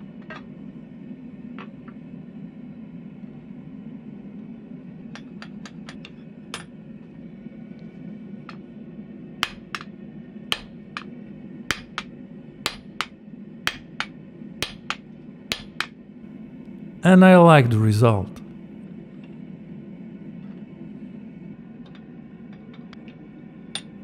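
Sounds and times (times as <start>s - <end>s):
hammer striking metal die: 9.4s - 9.8s, 11.7s - 12.0s, 12.7s - 12.9s, 13.7s - 14.0s, 14.6s - 14.9s, 15.5s - 15.8s.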